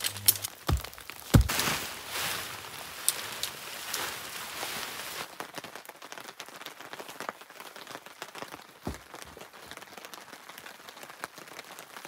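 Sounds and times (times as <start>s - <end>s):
rain falling: 0.0s - 12.0s
dull thump: 0.7s - 1.9s.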